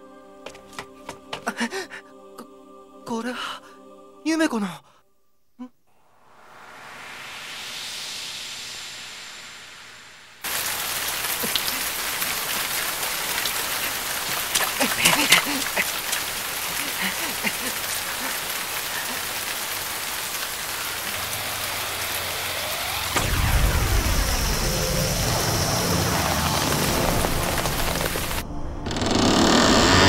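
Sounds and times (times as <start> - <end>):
low rumble: 5.9 - 10.8, 21.3 - 29.2
heavy rain falling: 10.3 - 30.0.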